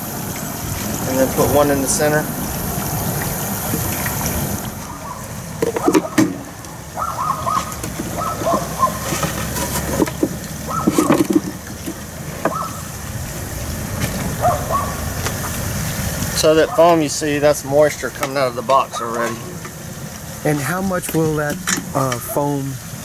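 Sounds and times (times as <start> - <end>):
steady low rumble: 0.0 - 5.8
hot wax sloshing and bubbling: 0.0 - 23.0.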